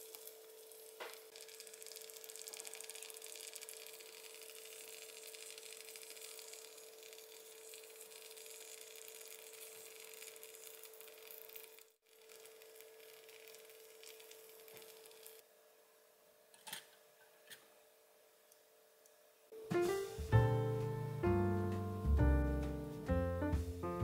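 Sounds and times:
faint hiss: 0:19.6 - 0:24.0.

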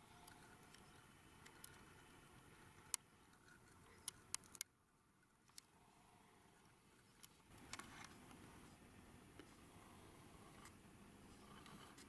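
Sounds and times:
sharp clicks: 0:03.9 - 0:04.7.

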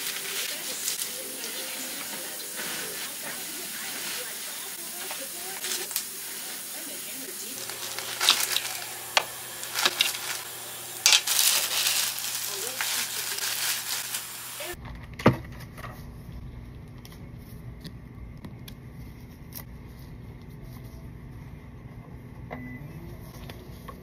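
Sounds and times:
plastic film crinkling: 0:00.0 - 0:14.8.

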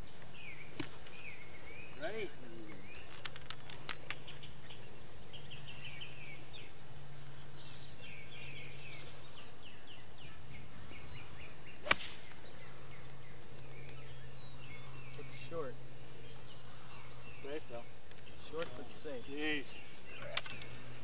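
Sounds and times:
small birds chirping: 0:00.0 - 0:21.0
steady low hum: 0:00.0 - 0:21.0
golf club striking ball: 0:11.8 - 0:12.4.

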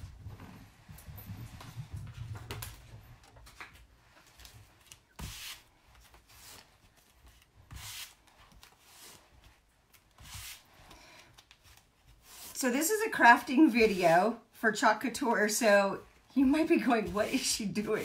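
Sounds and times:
scratchy rubbing swishes: 0:07.7 - 0:09.5, 0:10.2 - 0:10.7.

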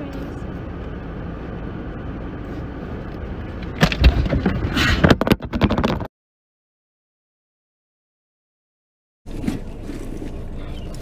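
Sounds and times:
car cabin rumble: 0:00.0 - 0:06.1
loud thumps and rustling: 0:03.7 - 0:06.1.

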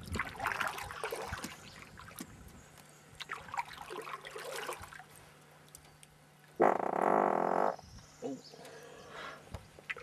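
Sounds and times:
paddle splashing in water: 0:00.0 - 0:02.4.

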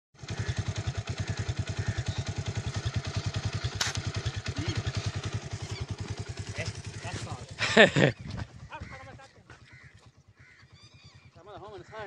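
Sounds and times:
engine chugging: 0:00.2 - 0:12.0
sharp snap: 0:03.7 - 0:04.1.

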